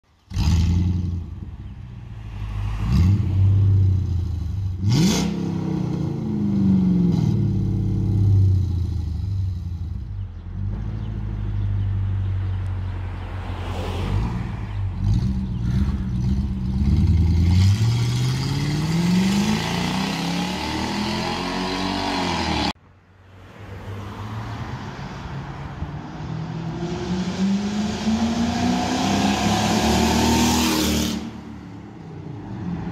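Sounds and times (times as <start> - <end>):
engine revving through exhaust: 4.4 - 8.3, 15.0 - 22.8.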